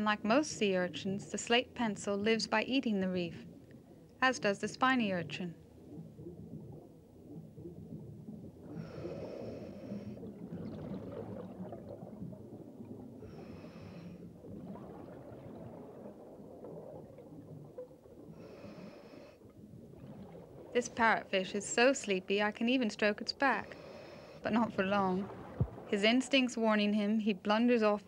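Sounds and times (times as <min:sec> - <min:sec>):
exhaled air bubbling: 0:02.9 - 0:26.8
breathing through a regulator: 0:08.7 - 0:10.3, 0:13.2 - 0:14.4, 0:18.4 - 0:19.4, 0:23.6 - 0:24.5.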